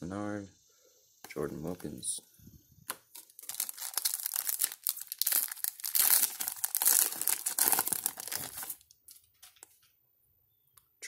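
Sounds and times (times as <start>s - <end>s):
foil wrapper crinkling and tearing: 2.9s - 9.2s.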